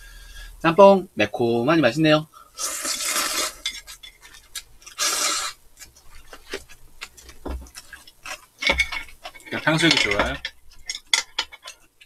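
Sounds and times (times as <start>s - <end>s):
noodles slurped: 2.6s - 8.6s
chewing: 2.7s - 9.5s.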